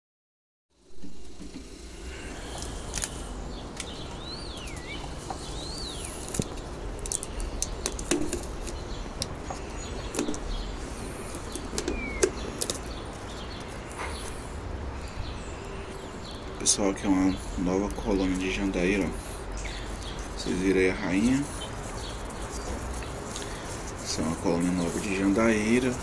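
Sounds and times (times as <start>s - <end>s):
clicks and rustles of hive covers: 2.6s - 14.4s
bird whistling: 4.2s - 6.2s, 11.8s - 12.5s.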